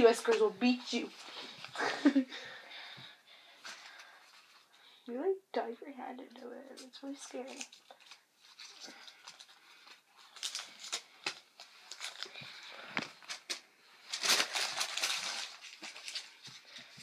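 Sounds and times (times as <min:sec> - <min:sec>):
paper rustling and crinkling: 0:06.8 - 0:17.0.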